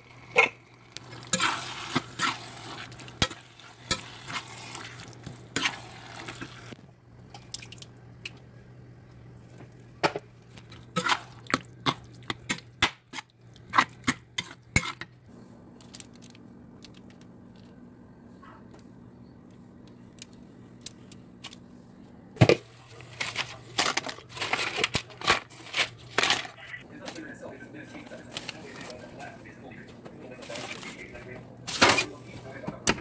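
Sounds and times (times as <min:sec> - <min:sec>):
wet squelching stirring: 0:00.1 - 0:06.8, 0:10.4 - 0:15.0
spatula scraping a pan: 0:01.2 - 0:06.8.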